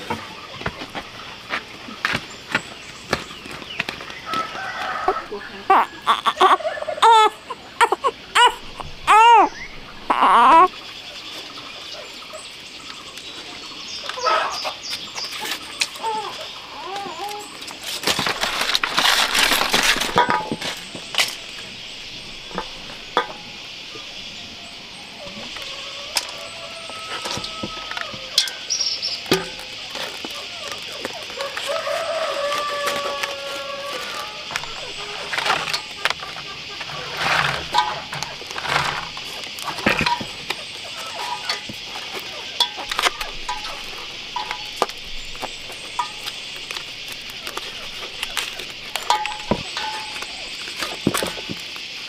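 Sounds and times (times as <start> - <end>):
chickens clucking: 0.0 - 52.0
leaves rustling and crinkling: 0.0 - 52.0
steady high hiss: 17.4 - 52.0.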